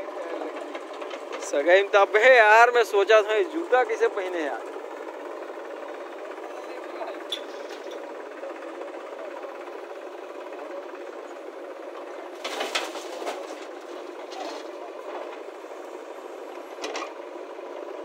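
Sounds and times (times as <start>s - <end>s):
diesel engine running: 0.0s - 18.0s
soil clattering into metal trolley: 12.4s - 14.7s.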